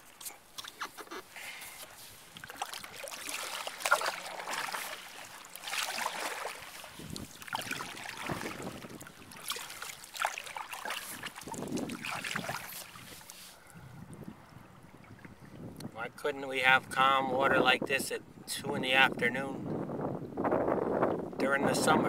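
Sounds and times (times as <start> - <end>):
paddle strokes splashing water: 0.0 - 13.7.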